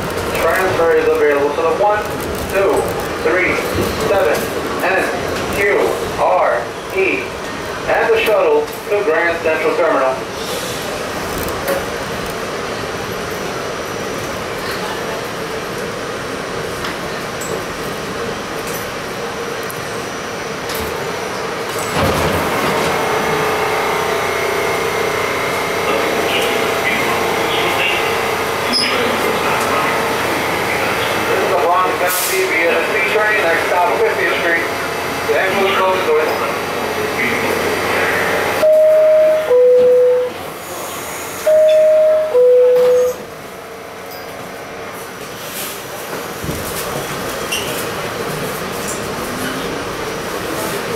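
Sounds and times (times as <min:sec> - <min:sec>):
subway car equipment hum: 0:00.0 - 0:50.9
steady whine: 0:22.5 - 0:40.4
two-note door chime: 0:38.6 - 0:40.3, 0:41.5 - 0:43.2.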